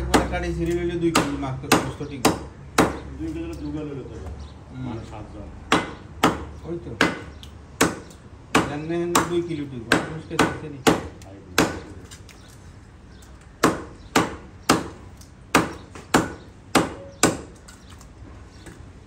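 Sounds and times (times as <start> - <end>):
cleaver chopping on wooden block: 0.0 - 3.1, 5.7 - 11.9, 13.6 - 17.6.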